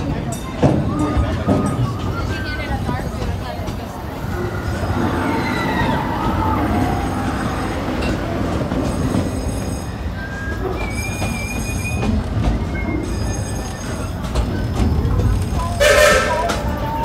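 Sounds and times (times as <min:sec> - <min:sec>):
train wheels rumbling on rails: 0:00.0 - 0:17.0
high wheel squeals: 0:03.8 - 0:17.0.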